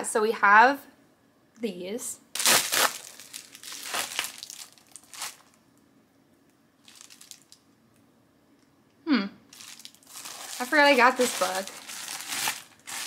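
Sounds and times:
plastic mailer tearing and rustling: 0:02.4 - 0:05.6, 0:06.8 - 0:07.6, 0:09.6 - 0:13.0.

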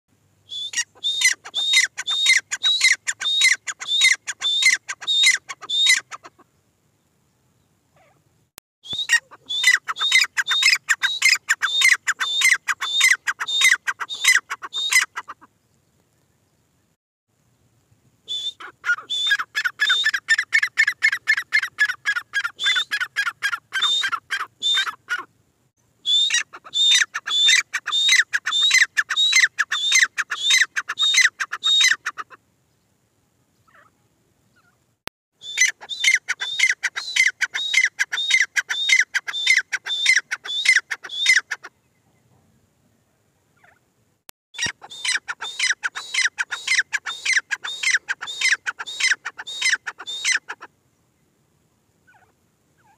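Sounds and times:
francolin calling: 0:00.4 - 0:06.5, 0:08.8 - 0:15.5, 0:18.3 - 0:25.3, 0:26.0 - 0:32.4, 0:35.4 - 0:42.0, 0:44.6 - 0:50.7.

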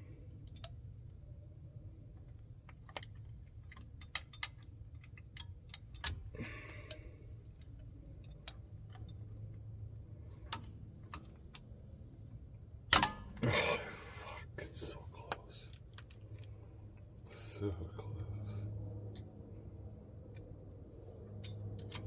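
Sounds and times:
metallic clicks and tool taps: 0:02.2 - 0:09.5, 0:10.3 - 0:11.8, 0:21.3 - 0:22.0.

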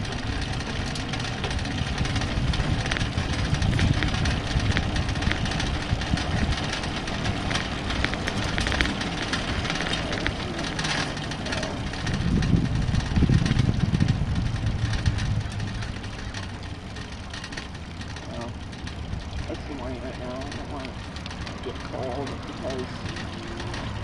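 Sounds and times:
wind on microphone: 0:00.0 - 0:16.1
bike tyre noise: 0:00.0 - 0:24.0
light ticks: 0:00.0 - 0:24.0.

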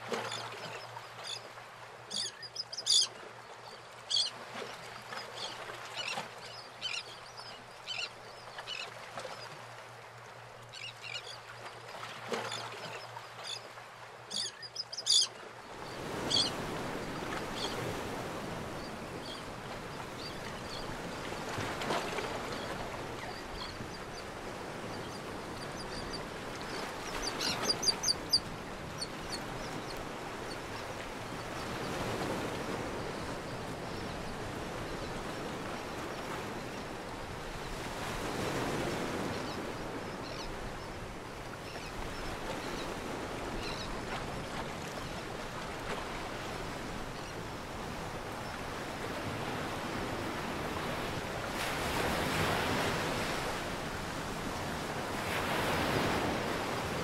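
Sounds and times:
bird calling: 0:02.1 - 0:03.1, 0:14.3 - 0:15.3, 0:27.1 - 0:30.0.

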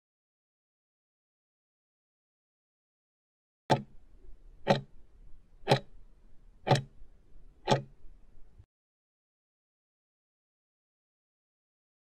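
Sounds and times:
timer ticking: 0:03.7 - 0:04.0, 0:04.6 - 0:05.0, 0:05.6 - 0:06.0, 0:06.6 - 0:07.0, 0:07.6 - 0:08.0.

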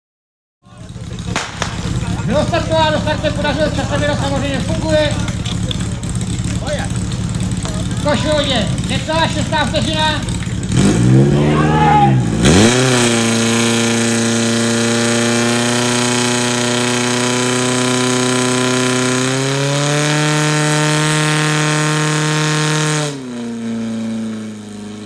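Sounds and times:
fire pump engine running: 0:00.6 - 0:25.0.

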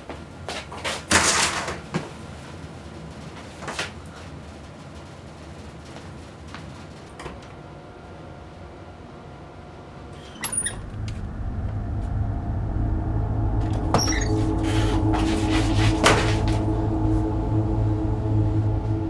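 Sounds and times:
door opening: 0:10.2 - 0:11.8, 0:13.6 - 0:16.7
low droning tone: 0:10.4 - 0:19.0.

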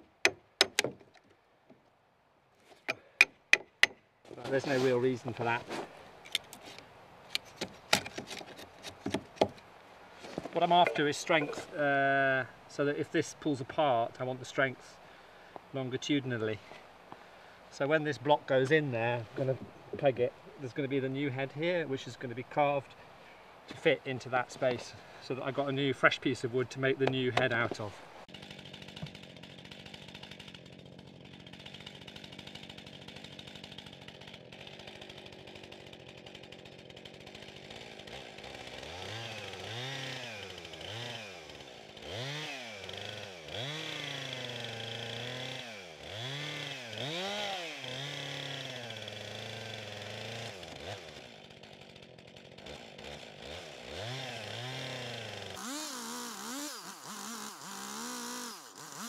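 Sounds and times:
chainsaw boring into log: 0:02.6 - 0:09.6, 0:10.2 - 0:12.6, 0:27.0 - 0:59.0.

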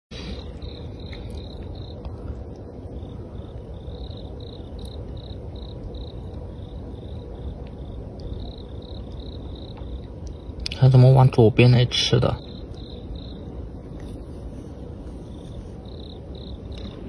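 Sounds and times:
cricket chirping: 0:00.2 - 0:17.0.

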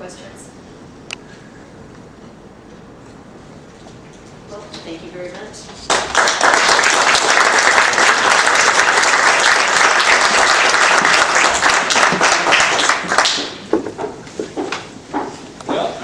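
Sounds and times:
audience applauding: 0:05.9 - 0:13.7.

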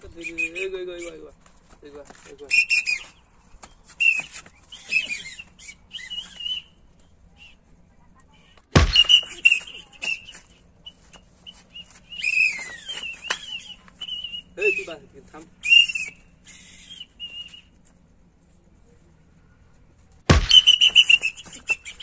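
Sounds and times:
wavering whistle-like chirps: 0:02.5 - 0:03.2, 0:03.9 - 0:06.8, 0:08.8 - 0:15.0, 0:15.6 - 0:17.7, 0:20.4 - 0:22.0
loud sudden smack: 0:08.7 - 0:09.4, 0:20.3 - 0:21.6.

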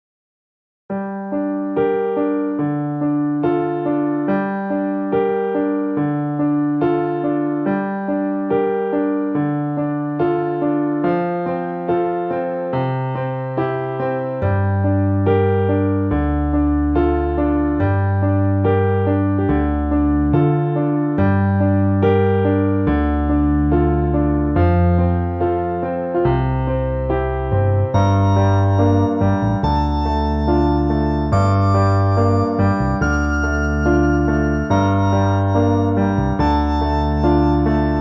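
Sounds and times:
piano-like keyboard pattern: 0:00.9 - 0:38.0
deep bass notes: 0:26.3 - 0:38.0.

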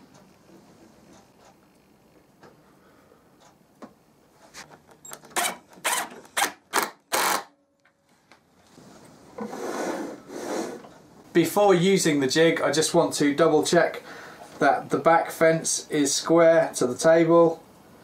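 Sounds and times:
power drill driving screw: 0:05.1 - 0:07.5.

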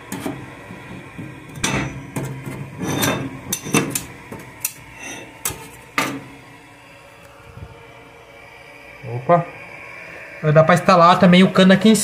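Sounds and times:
metal lid clanking: 0:01.2 - 0:06.2
knife scraping metal lid: 0:02.4 - 0:04.0, 0:04.9 - 0:05.7.

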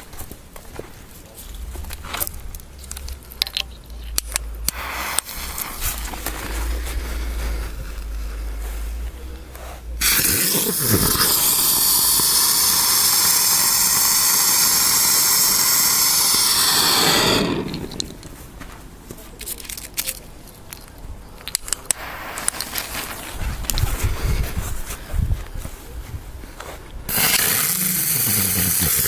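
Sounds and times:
spinning firework buzzing hiss: 0:10.0 - 0:18.3, 0:27.1 - 0:29.0
scattered clicks: 0:19.4 - 0:23.9.

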